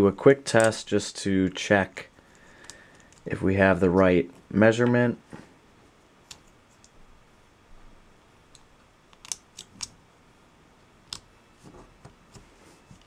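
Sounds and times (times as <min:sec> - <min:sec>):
plastic buckle clicking: 0:08.6 - 0:10.0.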